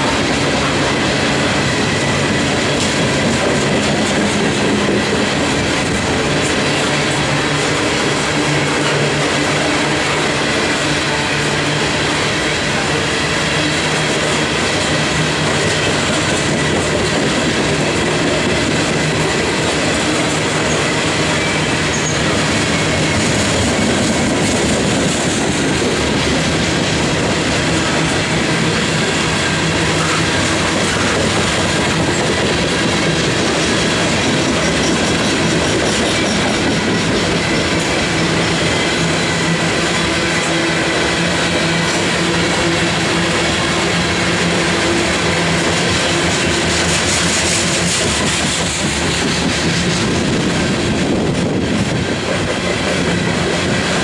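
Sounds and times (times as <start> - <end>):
train wheels rumbling on rails: 0.0 - 54.0
wheels squealing: 20.6 - 23.5.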